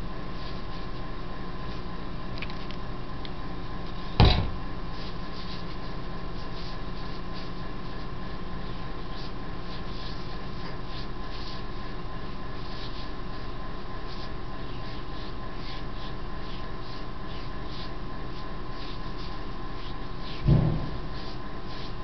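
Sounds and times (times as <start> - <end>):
steady electrical hum: 0.0 - 22.0
loud knock: 4.2 - 4.6, 20.4 - 21.0.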